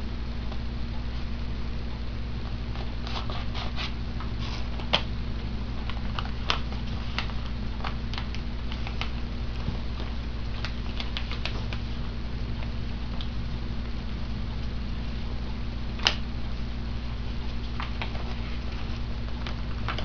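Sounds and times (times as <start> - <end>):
low electrical hum: 0.0 - 20.0
paper crinkling: 2.7 - 5.1, 5.7 - 12.0, 17.3 - 20.0.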